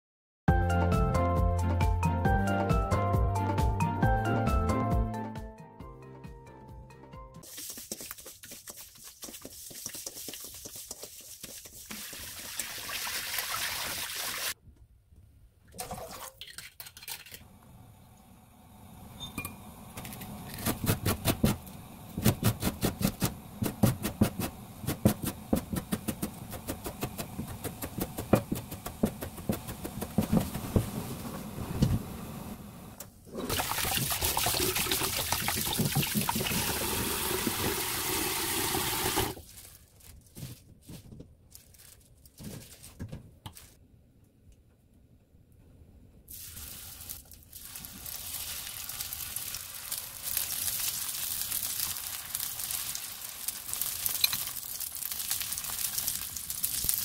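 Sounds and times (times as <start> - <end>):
hands rubbing oysters in water: 7.4 - 12.6
knife chopping on plastic board: 22.2 - 31.0
kitchen tap running: 33.4 - 39.4.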